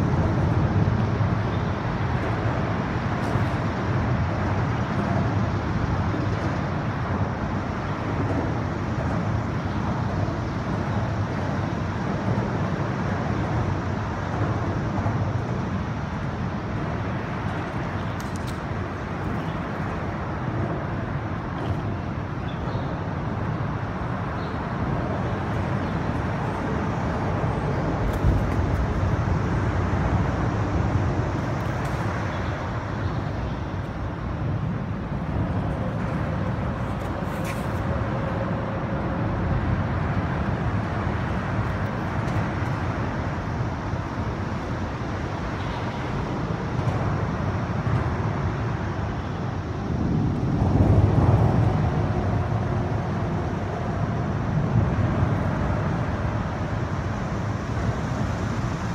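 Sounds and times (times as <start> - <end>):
highway traffic noise: 0.0 - 58.9.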